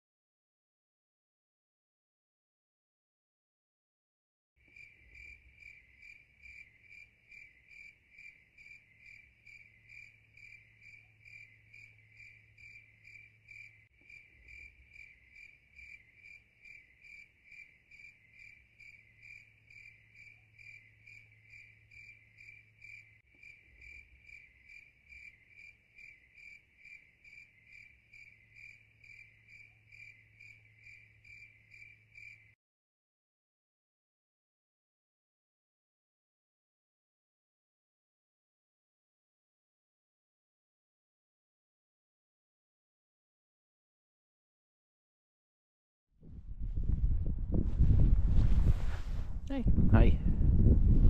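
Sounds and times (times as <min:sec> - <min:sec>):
crickets chirping: 0:04.6 - 0:32.6.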